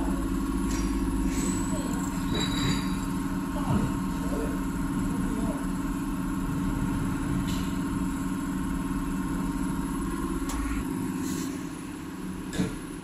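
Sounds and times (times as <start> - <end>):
test bench machine hum: 0.0 - 13.0
deep rumble: 2.8 - 10.4.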